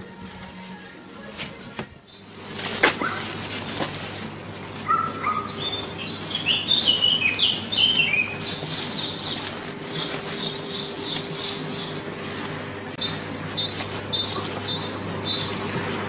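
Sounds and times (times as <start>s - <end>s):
steady low hum: 0.0s - 16.0s
bird chirping: 2.1s - 2.7s, 4.9s - 12.0s, 12.7s - 15.9s.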